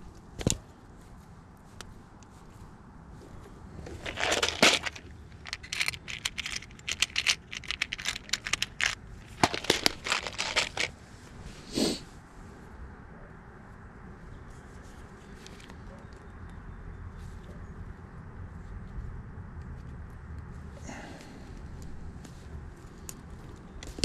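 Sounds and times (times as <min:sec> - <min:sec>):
scrapes and crinkling: 0:00.0 - 0:11.6
hand tools clicking: 0:04.0 - 0:10.9.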